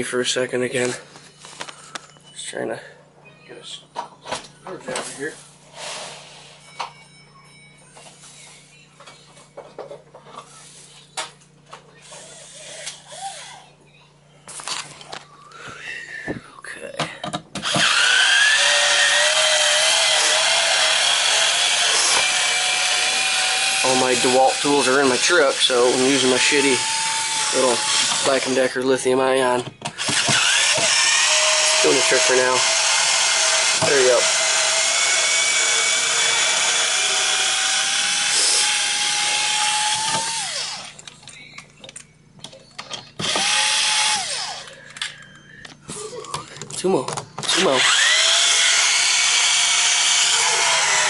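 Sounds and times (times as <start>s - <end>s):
cordless drill whining: 17.6s - 28.7s, 30.0s - 41.0s, 43.2s - 44.8s, 47.4s - 51.0s.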